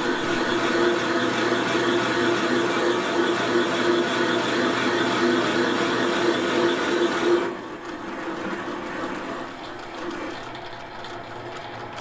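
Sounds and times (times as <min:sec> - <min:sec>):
metal lathe cutting: 0:00.0 - 0:11.8.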